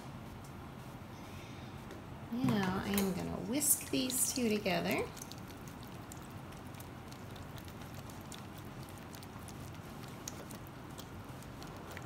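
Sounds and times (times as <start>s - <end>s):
whisk stirring wet mixture: 3.8s - 12.0s.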